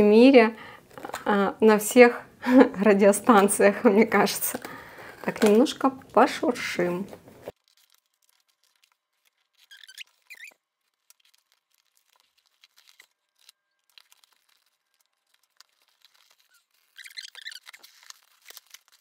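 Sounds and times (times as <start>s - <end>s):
packaging rustling: 7.0s - 19.0s
squeaky tearing: 7.5s - 19.0s.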